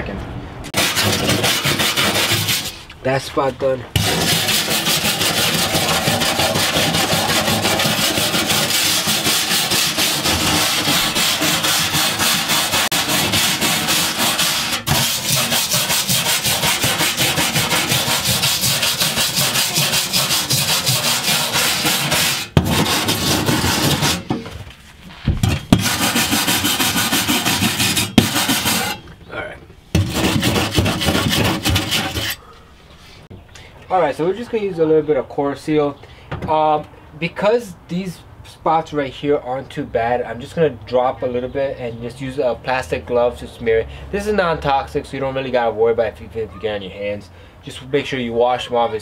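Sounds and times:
brush scrubbing rusty metal: 0.7s - 2.9s, 4.0s - 24.4s, 25.4s - 29.1s, 30.0s - 32.5s.

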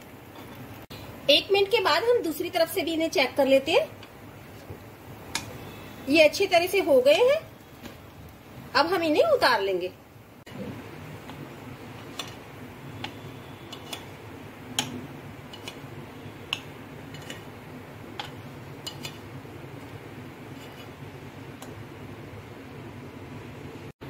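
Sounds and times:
low steady hum: 0.0s - 24.0s
metal spoon clicking on pan: 14.8s - 15.8s, 16.5s - 17.4s, 18.2s - 19.2s.

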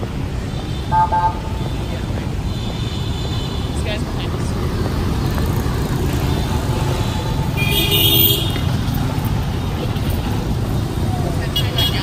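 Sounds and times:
street traffic rumble: 0.0s - 12.0s
vehicle horn honking: 0.6s - 1.8s, 6.3s - 8.7s.

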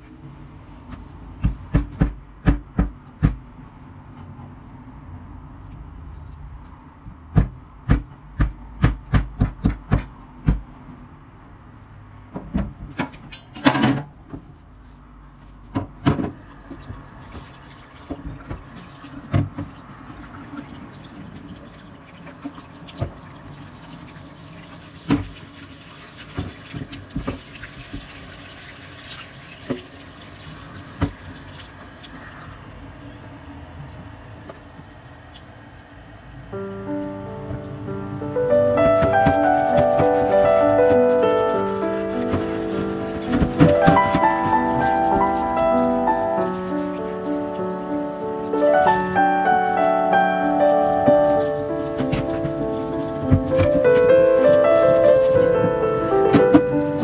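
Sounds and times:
meat mallet pounding on board: 1.4s - 3.4s, 7.3s - 10.7s
running water hiss: 16.4s - 22.3s, 22.9s - 57.0s
scattered knocks: 38.7s - 45.7s.

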